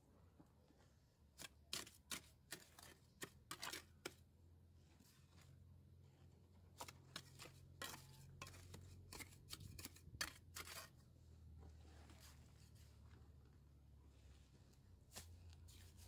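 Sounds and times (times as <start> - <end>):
trowel scraping mortar on stone: 1.3 - 4.2, 6.8 - 11.1.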